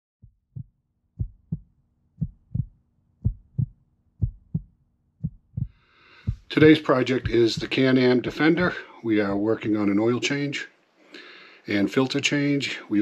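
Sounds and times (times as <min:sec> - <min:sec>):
heartbeat double thumps: 0:00.2 - 0:07.8.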